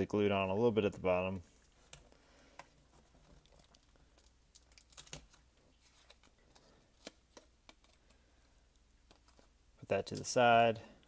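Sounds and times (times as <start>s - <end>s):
foil crinkling: 2.9s - 7.2s.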